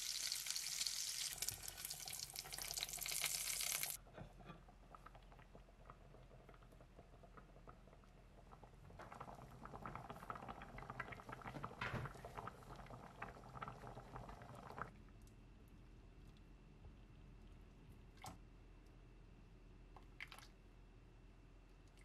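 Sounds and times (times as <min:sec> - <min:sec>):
stew bubbling in a pot: 0:00.0 - 0:15.1.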